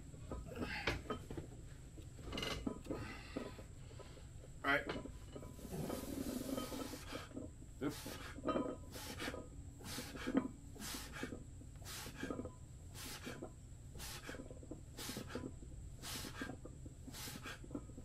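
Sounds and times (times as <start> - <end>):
man breathing hard: 2.9 - 4.3, 5.7 - 17.8.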